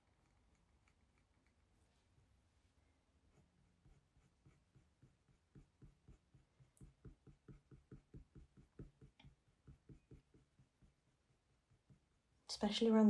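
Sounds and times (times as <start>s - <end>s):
pencil scratching on paper: 3.3s - 12.2s.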